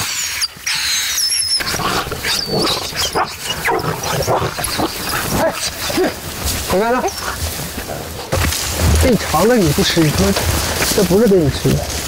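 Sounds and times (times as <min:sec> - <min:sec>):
gruff animal noises: 0:00.0 - 0:12.0
dogs squabbling and tearing: 0:00.1 - 0:12.0.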